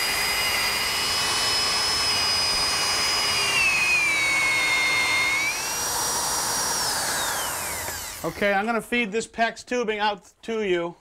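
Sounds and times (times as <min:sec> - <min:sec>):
electric drill whining: 0:00.0 - 0:08.4.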